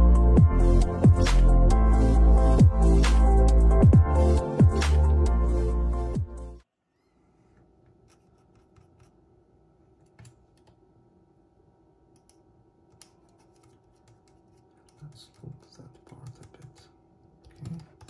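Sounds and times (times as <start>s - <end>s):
small clicks and taps of tools: 12.2s - 16.8s.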